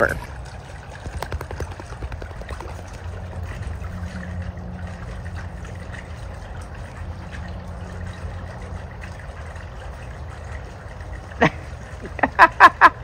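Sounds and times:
pool water trickling: 0.0 - 13.0
steady low hum: 0.0 - 13.0
dull low rumble: 0.4 - 10.0.

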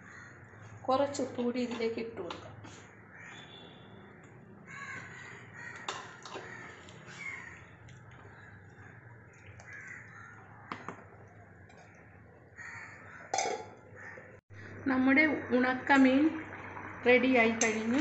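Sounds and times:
wooden spoon stirring curry: 4.9 - 12.1
spoon knocking against pot: 13.3 - 13.8.

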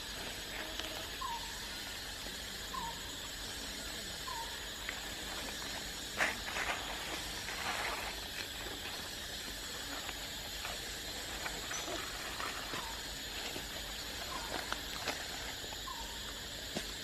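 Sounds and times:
steady outdoor hiss: 0.0 - 17.0
steps on dry leaves and gravel: 5.5 - 10.4.

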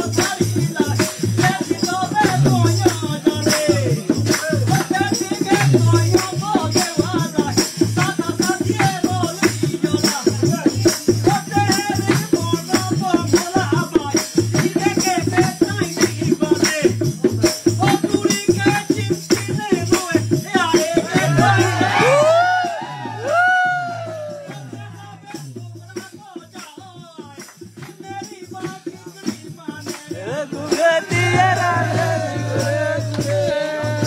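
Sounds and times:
rattling percussion rhythm: 0.0 - 34.0.

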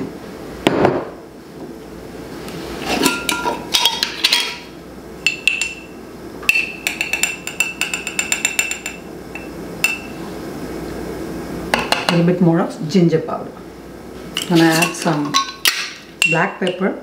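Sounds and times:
spoon scraping: 14.4 - 15.3.

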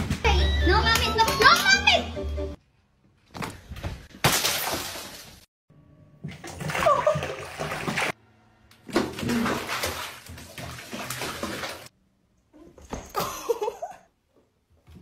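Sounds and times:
bathwater splashing and sloshing: 4.0 - 5.5, 6.2 - 8.2, 8.8 - 12.0.

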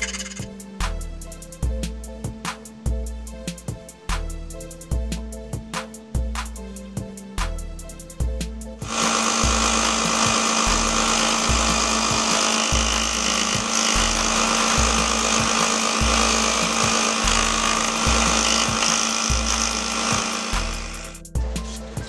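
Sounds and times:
sander motor hum: 8.8 - 21.2
wood sanding hiss: 8.8 - 22.0.

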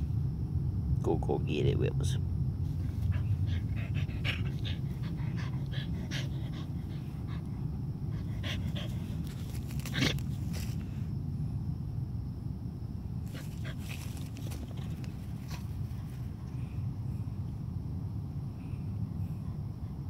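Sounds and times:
dog panting: 2.7 - 10.4.

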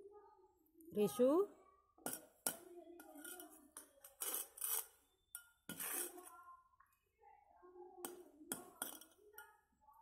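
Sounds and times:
soft voice: 5.8 - 10.0.

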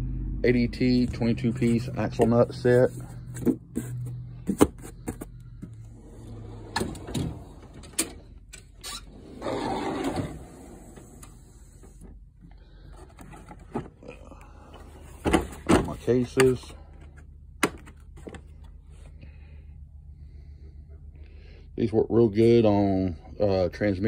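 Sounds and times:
drawer running on slides: 6.0 - 8.2, 9.0 - 12.0.

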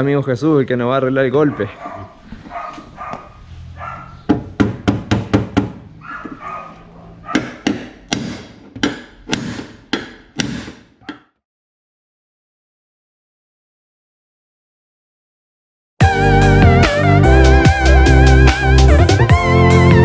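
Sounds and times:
dog barking: 1.4 - 4.3, 6.0 - 7.6
hammer striking sheet metal: 7.3 - 11.2.

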